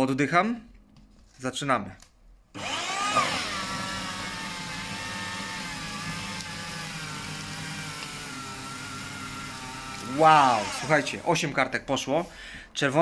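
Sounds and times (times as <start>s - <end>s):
paper shredder motor whining: 2.6s - 11.6s.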